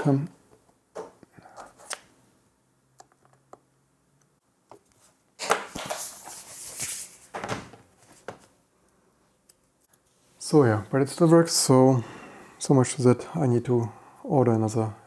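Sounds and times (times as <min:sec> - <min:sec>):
laptop rubbing and scraping: 0:05.7 - 0:07.3.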